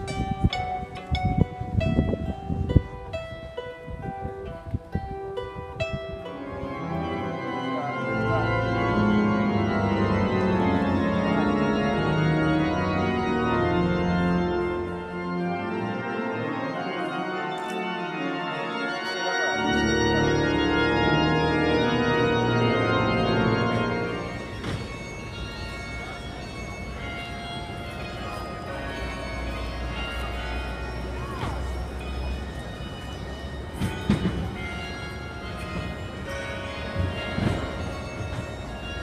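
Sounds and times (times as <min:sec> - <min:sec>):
plucked kokle notes: 0:00.0 - 0:08.0
pipe organ playing chords: 0:00.0 - 0:39.0.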